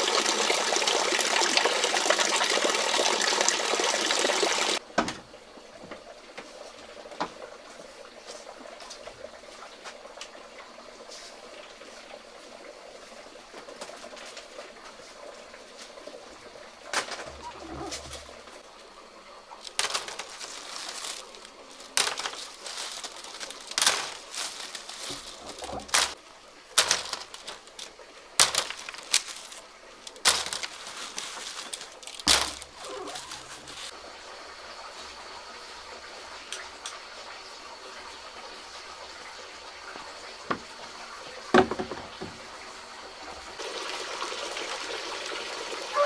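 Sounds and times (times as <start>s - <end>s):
corn dropping into basket: 19.6s - 26.2s, 26.8s - 33.9s.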